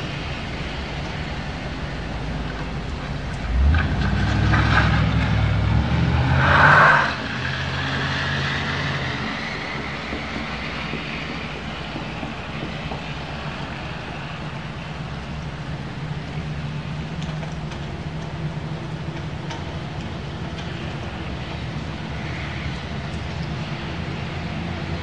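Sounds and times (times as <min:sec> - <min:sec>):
vehicle engine passing by: 0:03.5 - 0:09.8.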